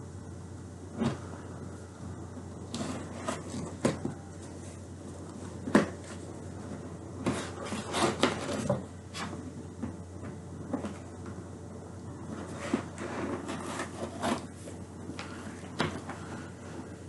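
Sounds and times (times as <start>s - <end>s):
cardboard rustling and scraping: 2.6s - 11.4s, 12.2s - 17.0s.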